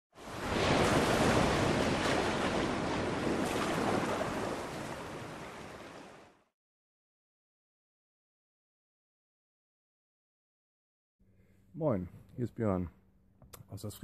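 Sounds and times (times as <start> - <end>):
sea surf: 0.1 - 6.5
wind: 0.1 - 6.5.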